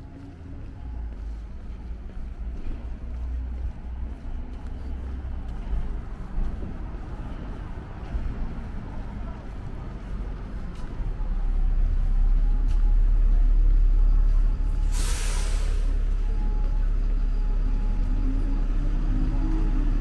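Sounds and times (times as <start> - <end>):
bus engine running: 0.0 - 20.0
air brakes hissing: 14.8 - 16.1.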